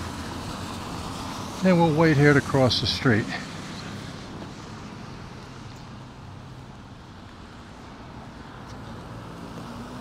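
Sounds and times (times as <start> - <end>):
road noise: 0.0 - 10.0.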